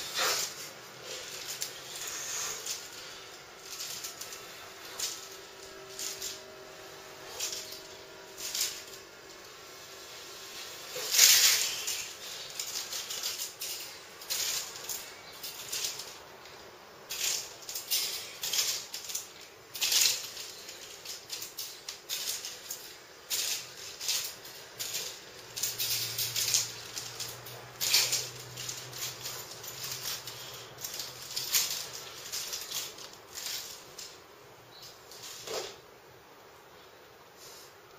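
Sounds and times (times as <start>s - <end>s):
chest expander springs rattling: 17.1s - 34.2s.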